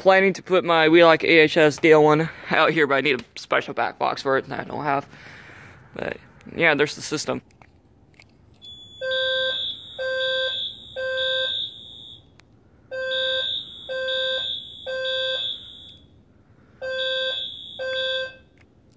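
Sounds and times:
fire alarm horns blasting: 8.6s - 18.6s.

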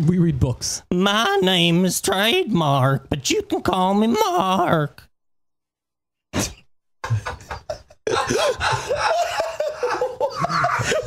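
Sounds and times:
people laughing: 7.0s - 11.0s.

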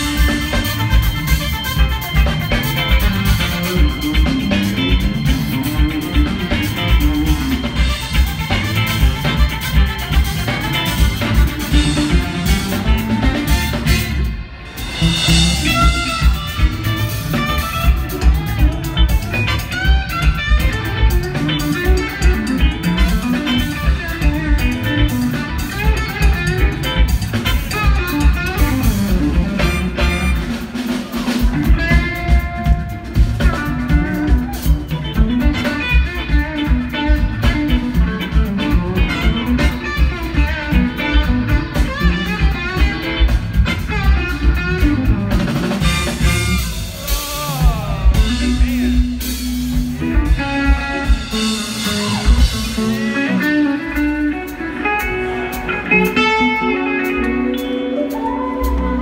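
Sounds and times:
bass: 0.0s - 59.0s
drum kit beat: 0.0s - 59.0s
electric guitars: 0.0s - 59.0s.

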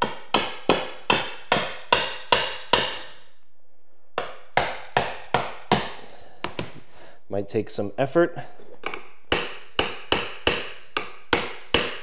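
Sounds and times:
hammer tapping vinyl plank: 4.2s - 6.8s, 8.9s - 12.0s.

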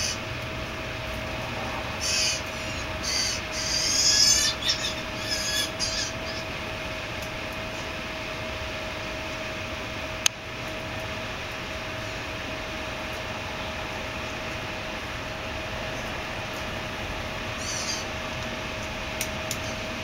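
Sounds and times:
bird fledglings calling harshly: 0.0s - 0.2s, 1.9s - 6.6s, 17.4s - 18.2s
faint hum: 0.0s - 20.0s.

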